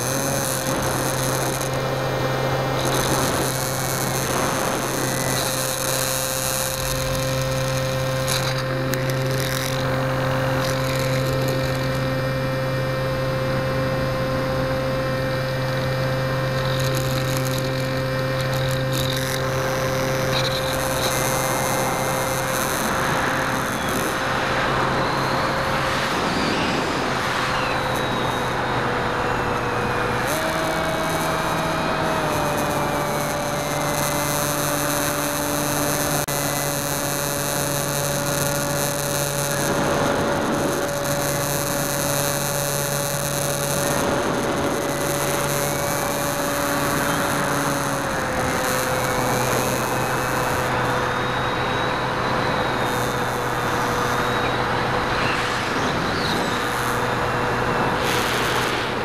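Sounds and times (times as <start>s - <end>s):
rush of wind: 0.0s - 36.1s, 37.6s - 59.0s
electric motor propeller whine: 0.0s - 59.0s.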